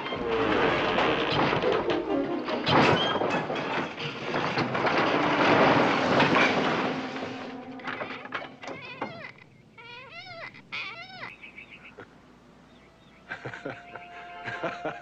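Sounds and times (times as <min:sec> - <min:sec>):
wooden boards crashing down: 0:00.0 - 0:09.1
music playing: 0:01.7 - 0:02.7, 0:13.6 - 0:15.0.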